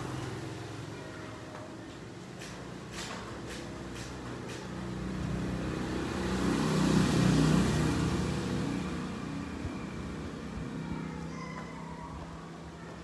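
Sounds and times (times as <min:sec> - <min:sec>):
vehicle passing by: 0:00.0 - 0:13.0.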